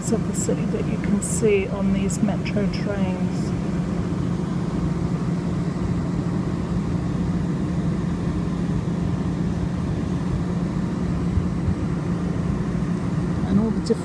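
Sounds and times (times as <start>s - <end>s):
steady low hum: 0.0s - 14.0s
uneven low rumble: 0.0s - 14.0s.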